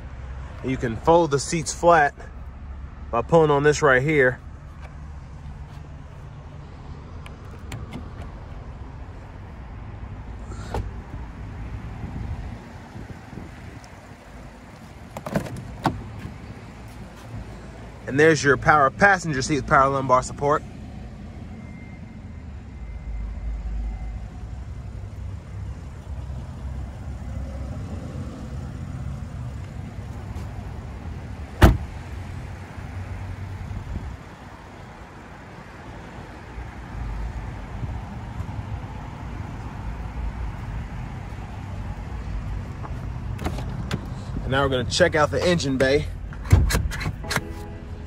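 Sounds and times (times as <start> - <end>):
car door shutting: 7.3 - 8.6, 10.5 - 11.3, 15.0 - 16.5, 31.6 - 32.0, 42.9 - 44.2, 46.3 - 47.8.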